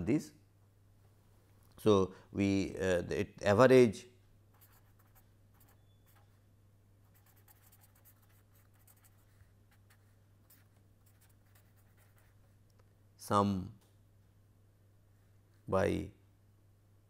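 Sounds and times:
marker scratching on paper: 4.5 - 6.4, 7.0 - 12.5.

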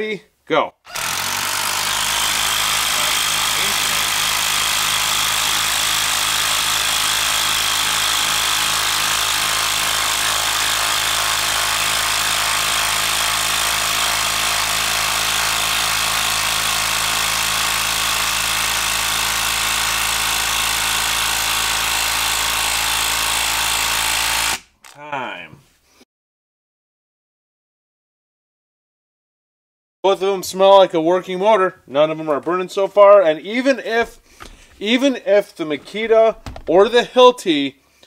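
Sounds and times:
impact driver hammering screw: 0.9 - 25.0.

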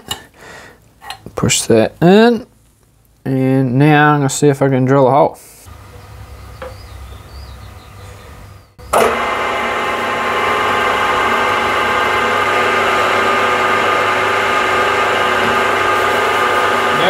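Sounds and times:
milling machine spindle humming: 5.7 - 17.0.

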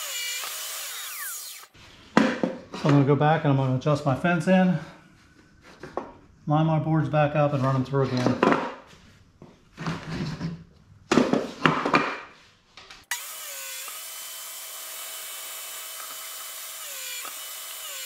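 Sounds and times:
table saw whining: 0.0 - 1.8, 13.1 - 18.0.

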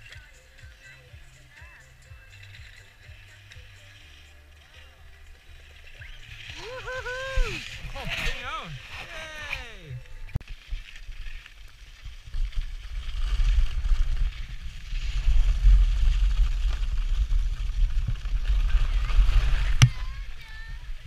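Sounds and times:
skis scraping on snow: 0.0 - 21.0
wind buffeting microphone: 12.7 - 21.0.

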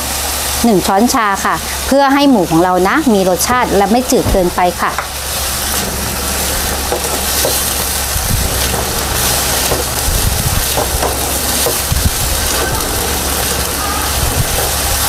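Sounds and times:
meat sizzling in a pan: 0.0 - 15.0
spatula knocking against pan: 10.6 - 12.0.

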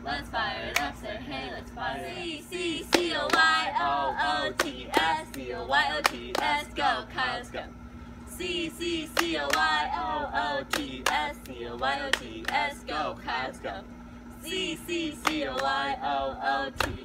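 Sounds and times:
cheerleaders chanting: 0.0 - 7.5
hand claps: 4.6 - 6.6, 9.2 - 9.7, 10.7 - 12.6, 15.2 - 15.8, 16.8 - 17.0.

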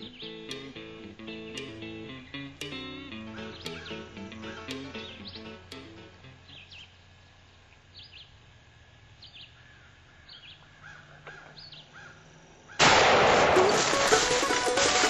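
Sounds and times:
plucked-string music: 0.0 - 6.7, 13.0 - 15.0
high falling bird chirp: 0.0 - 8.4
lower arched bird calls: 0.0 - 8.5, 9.1 - 13.0.

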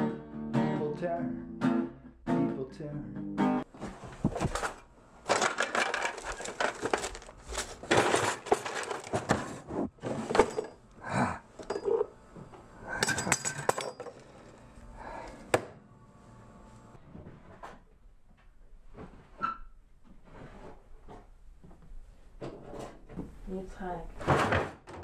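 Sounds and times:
metal utensils clattering: 4.6 - 10.8, 11.6 - 12.1, 12.9 - 14.6.

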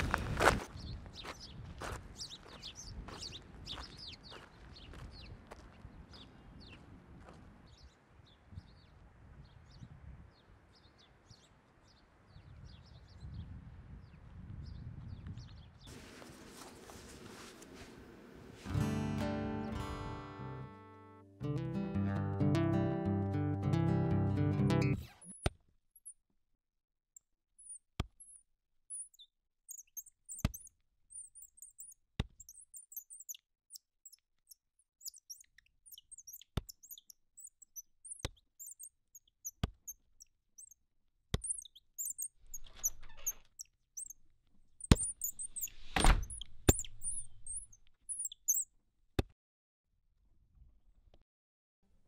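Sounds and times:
birds chirping: 0.0 - 26.1, 27.6 - 40.8, 41.4 - 48.7
rustle: 15.9 - 18.8.

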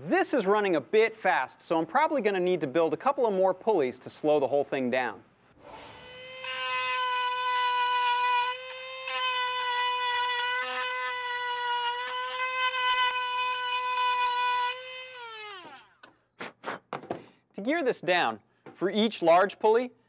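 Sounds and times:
rotary tool grinding plastic: 5.7 - 16.0.

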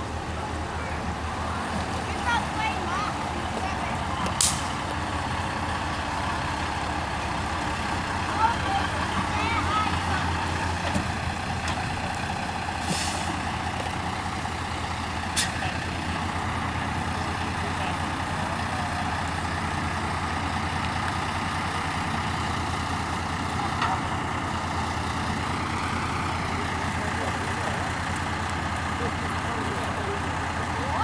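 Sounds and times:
heavy tractor engine humming: 0.0 - 31.0
short hiss: 12.8 - 13.4.

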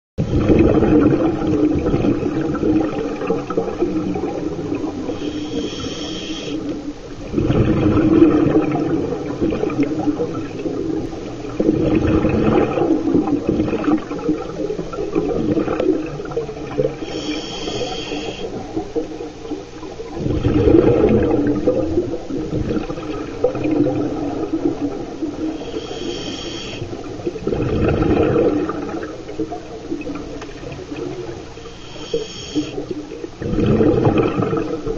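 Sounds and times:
rush of exhaled bubbles: 0.2 - 34.9
underwater rumble: 0.2 - 34.9
regulator hissing inhale: 5.0 - 6.7, 17.0 - 18.6, 25.5 - 27.0, 31.6 - 32.9.

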